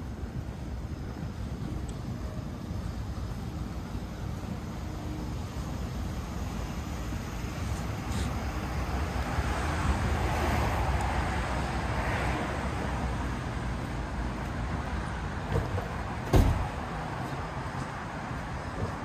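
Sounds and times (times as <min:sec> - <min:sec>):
low traffic rumble: 0:00.0 - 0:19.0
car passing: 0:06.6 - 0:18.9
sharp thump: 0:15.5 - 0:16.7.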